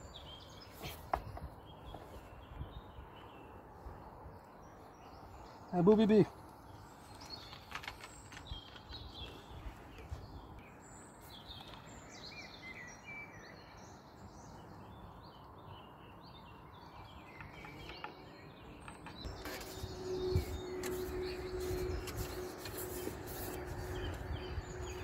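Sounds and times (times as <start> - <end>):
small birds chirping: 0.0 - 25.0
outdoor background rumble: 17.2 - 25.0.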